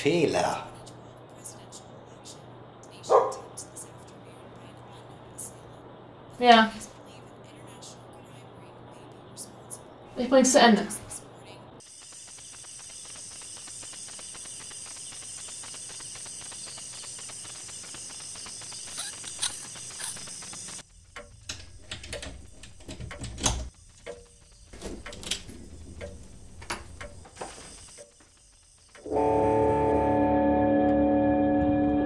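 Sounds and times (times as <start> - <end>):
faint high whine: 0.0 - 22.0
steady hiss: 0.0 - 29.2.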